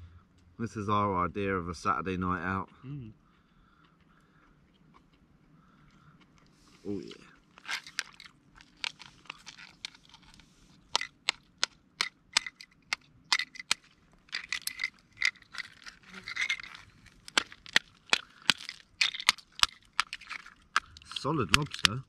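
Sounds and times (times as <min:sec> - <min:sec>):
lobster shell cracking: 0:07.4 - 0:22.0.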